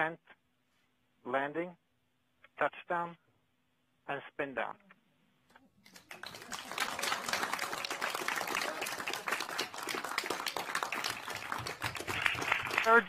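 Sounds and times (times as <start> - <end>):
group of people clapping: 5.8 - 13.0.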